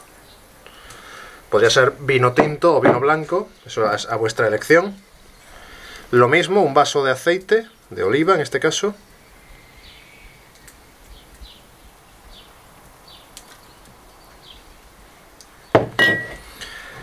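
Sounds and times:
jug knocking down: 0:02.4 - 0:03.1, 0:15.8 - 0:16.4
faint bird chirps: 0:09.0 - 0:14.7.

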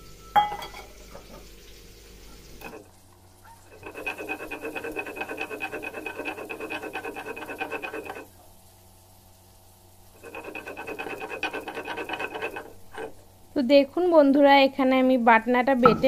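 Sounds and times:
stone roller grinding on stone slab: 0:03.6 - 0:08.3, 0:10.1 - 0:13.2.

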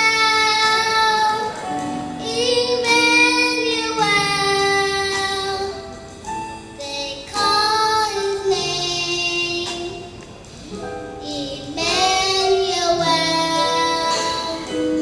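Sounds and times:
girl singing into a microphone: 0:00.0 - 0:06.0, 0:06.8 - 0:10.2, 0:11.2 - 0:15.0.

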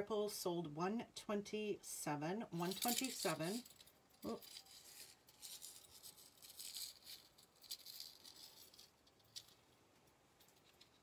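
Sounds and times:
metal chain rattling: 0:02.6 - 0:09.7.

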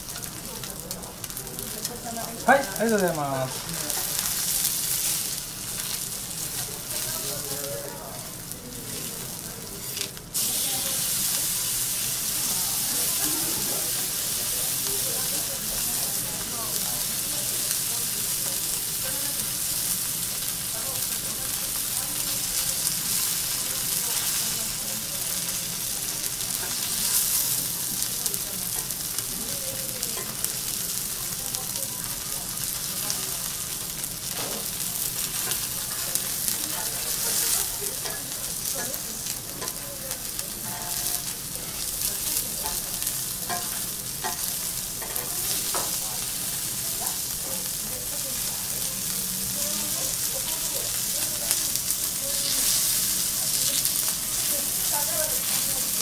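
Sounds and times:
steaks sizzling on griddle: 0:00.0 - 0:56.0
utensils clicking and scraping: 0:34.3 - 0:46.1.

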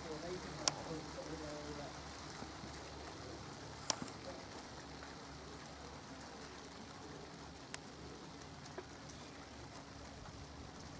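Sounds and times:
steady hiss: 0:00.0 - 0:10.9.

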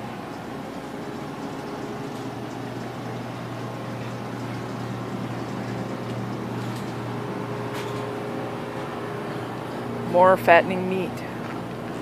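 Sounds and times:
refrigerated display cases humming: 0:00.0 - 0:12.0.

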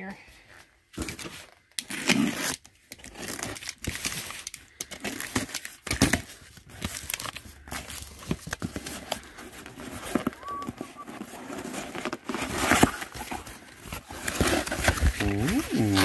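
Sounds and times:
cardboard scraping and crinkling: 0:00.9 - 0:16.0
box cutter slitting packing tape: 0:01.0 - 0:09.2, 0:11.4 - 0:16.0
tape tearing: 0:01.0 - 0:16.0.

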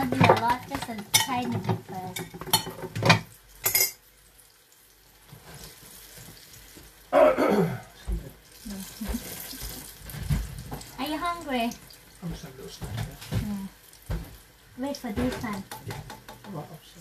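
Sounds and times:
kitchen clatter: 0:00.0 - 0:04.0, 0:08.1 - 0:11.3, 0:12.2 - 0:16.8
utensil clinking against dishes: 0:00.0 - 0:04.0
frying oil hiss: 0:00.0 - 0:07.2, 0:07.9 - 0:17.0.

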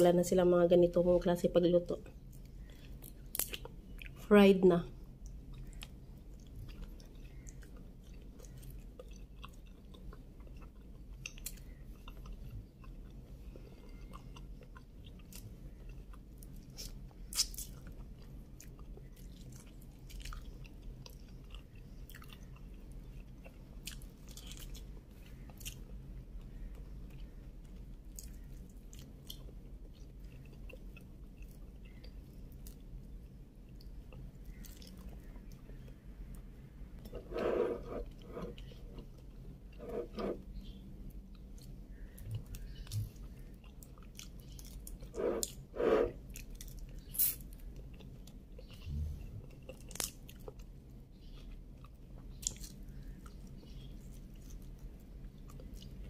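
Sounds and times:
steady low hum: 0:00.0 - 0:56.0
soft chewing: 0:02.0 - 0:04.2, 0:04.9 - 0:56.0.

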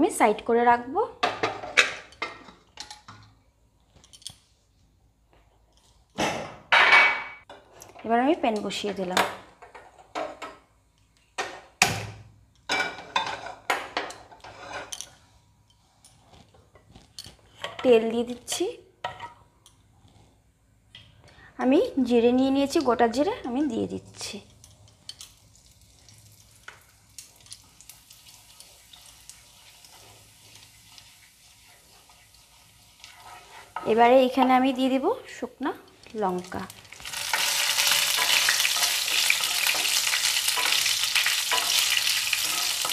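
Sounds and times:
spatula stirring in pan: 0:13.2 - 0:17.8, 0:25.7 - 0:34.5, 0:36.8 - 0:42.9
seeds sizzling in hot oil: 0:24.2 - 0:42.9.

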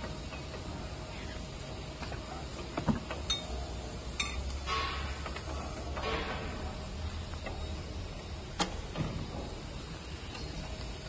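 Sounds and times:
steady low hum: 0:00.0 - 0:11.0
light metallic clicks and clinks: 0:03.2 - 0:03.6.

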